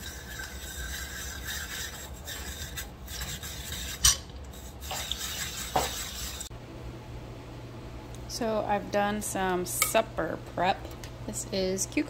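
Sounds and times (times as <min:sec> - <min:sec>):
drum grater rasping cucumber: 0:00.0 - 0:06.5.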